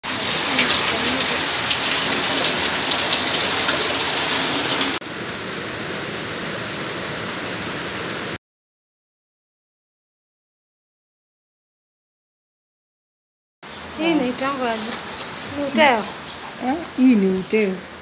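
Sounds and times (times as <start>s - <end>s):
heavy rain falling: 0.0s - 8.4s, 14.0s - 18.0s.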